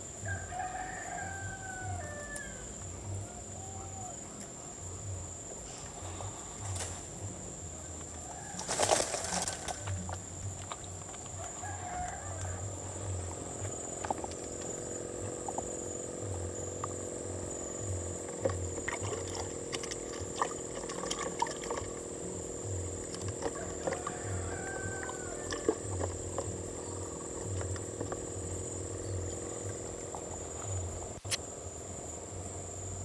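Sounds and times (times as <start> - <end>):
high-pitched insect drone: 0.0 - 33.0
steady low hum: 0.0 - 33.0
fishing gear rustling and clicking: 8.5 - 15.7, 18.2 - 28.7.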